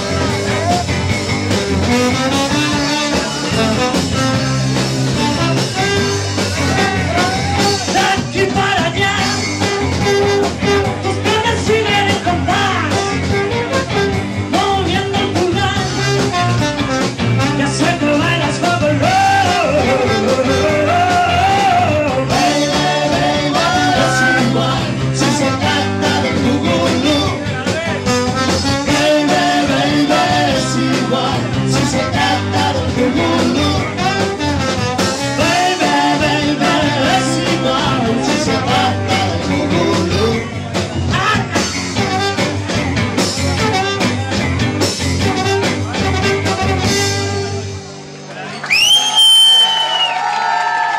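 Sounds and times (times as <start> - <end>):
trombone: 0.0 - 8.2, 9.1 - 14.8, 15.6 - 27.3, 28.0 - 40.4, 41.2 - 48.0
electric guitar: 0.0 - 49.0
live band playing: 0.0 - 50.9
person singing: 6.6 - 9.8, 10.7 - 13.7, 17.4 - 27.5, 28.7 - 34.4, 35.3 - 40.5.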